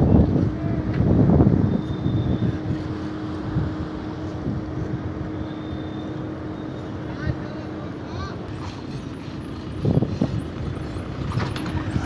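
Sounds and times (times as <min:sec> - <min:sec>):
wind on microphone: 0:00.0 - 0:05.9, 0:08.8 - 0:12.0
distant machine hum: 0:00.0 - 0:12.0.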